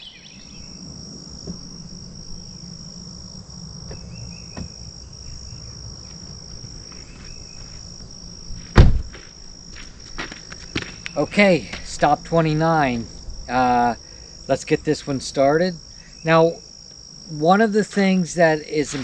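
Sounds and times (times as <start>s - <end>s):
insect buzzing: 0.0s - 19.0s
car door slamming: 8.7s - 9.2s.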